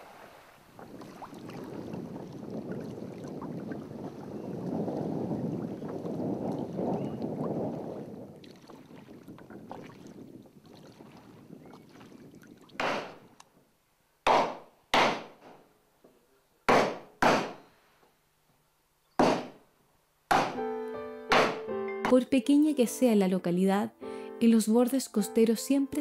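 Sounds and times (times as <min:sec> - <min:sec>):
water around a rowboat: 0:00.0 - 0:13.9.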